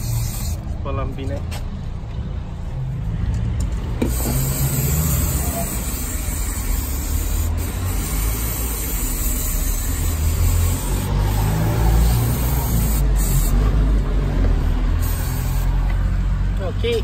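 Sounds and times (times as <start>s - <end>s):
aerosol spray hissing: 0.0s - 0.6s, 4.1s - 13.7s, 15.0s - 15.8s.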